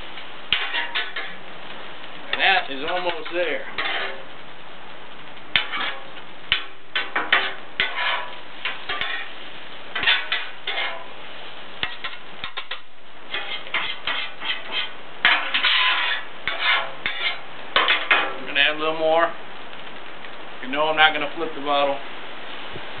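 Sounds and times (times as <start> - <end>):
spatulas scraping on a griddle: 0.0 - 1.4, 2.3 - 4.4, 5.5 - 18.4.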